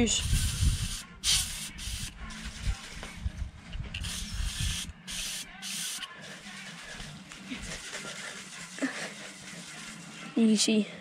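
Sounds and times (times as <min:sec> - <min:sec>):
compressed air spray hissing: 0:00.2 - 0:02.1, 0:04.0 - 0:06.1.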